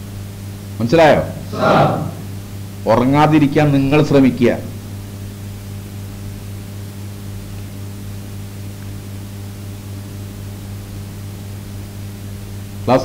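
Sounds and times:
microphone and amplifier hiss: 0.0 - 7.7, 10.5 - 13.0
low electrical hum: 0.0 - 13.0.

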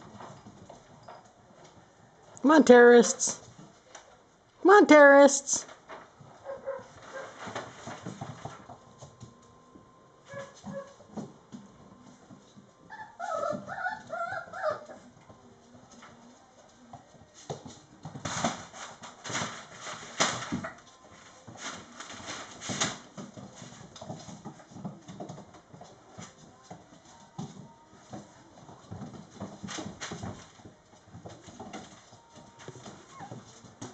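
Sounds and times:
puppies tapping on wooden floor: 0.0 - 1.8, 5.7 - 33.9
puppy whining: 12.8 - 15.2, 32.8 - 33.6.

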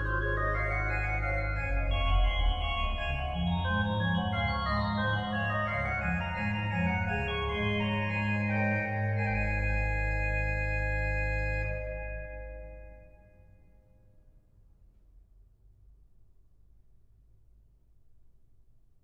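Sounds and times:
organ music: 0.0 - 13.0.

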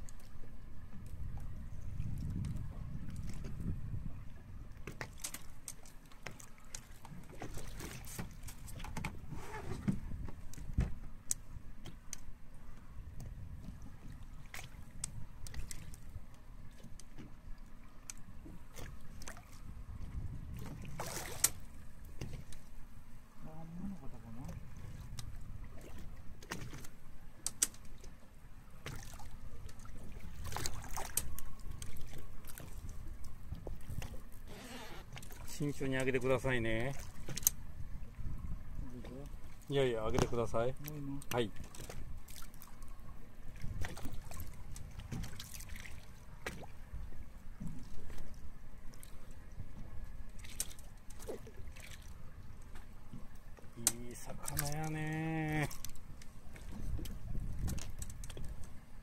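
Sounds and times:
boat engine rumble: 0.0 - 59.0
water lapping at hull: 0.0 - 59.0
small clicks and knocks: 26.4 - 28.0.

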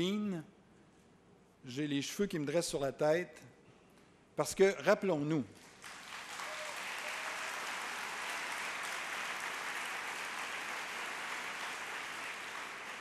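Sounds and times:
audience applauding: 5.7 - 13.0.

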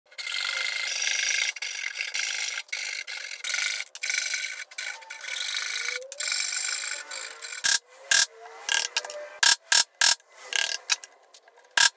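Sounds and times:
hand saw rasping strokes: 0.2 - 9.4.

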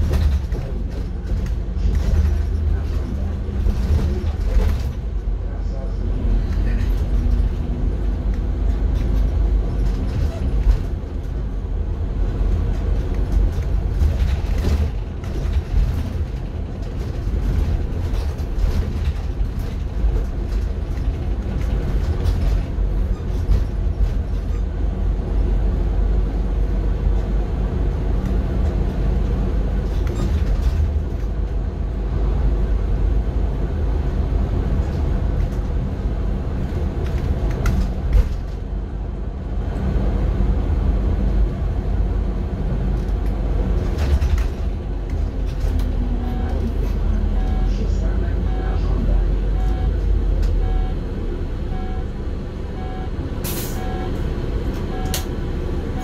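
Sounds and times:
rattles and knocks: 0.0 - 5.2, 12.2 - 24.8, 42.9 - 47.0
bus engine and road rumble: 0.0 - 56.0.

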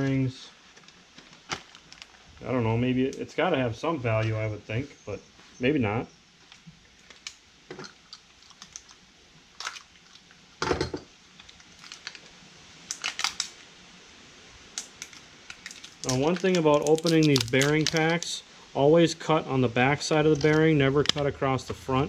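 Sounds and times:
clicks taps and rustles of handling: 20.3 - 21.3.

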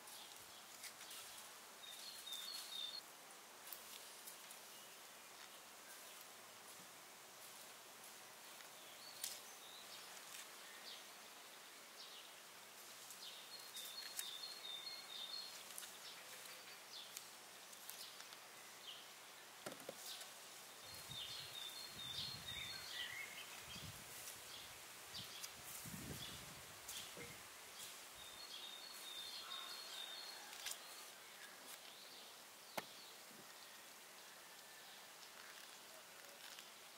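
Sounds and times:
bird chirping: 1.1 - 3.0, 13.3 - 17.2, 20.0 - 23.9, 26.2 - 33.8.

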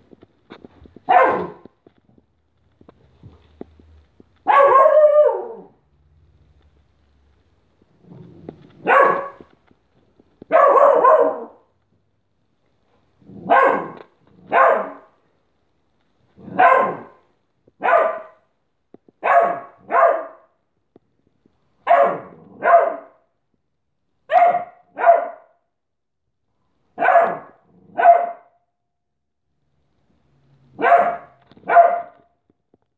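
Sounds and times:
dog barking: 1.1 - 1.7, 4.4 - 5.8, 8.8 - 9.5, 10.5 - 11.7, 13.4 - 15.2, 16.4 - 17.2, 17.8 - 18.4, 19.2 - 20.6, 21.8 - 23.2, 24.3 - 25.6, 27.0 - 28.6, 30.8 - 32.2.

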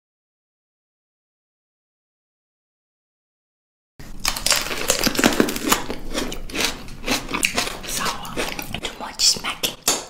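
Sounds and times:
chewing juicy plums: 4.2 - 10.0.

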